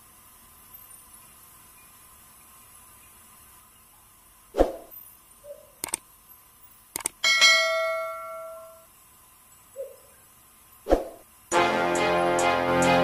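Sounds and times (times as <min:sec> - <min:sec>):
mouse click: 0:05.8 - 0:06.0
bright bell ding: 0:07.2 - 0:08.8.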